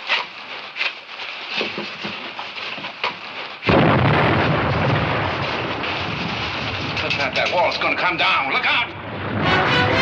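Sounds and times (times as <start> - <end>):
wall collapsing rumble: 3.7 - 8.1, 8.9 - 9.8.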